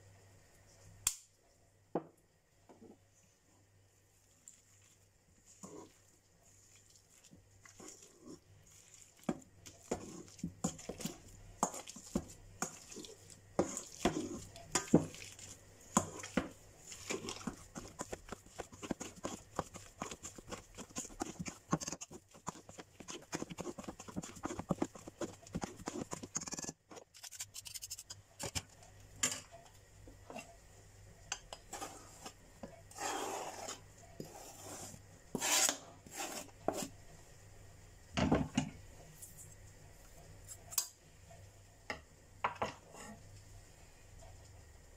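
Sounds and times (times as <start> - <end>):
masher squashing potatoes: 6.7 - 28.7.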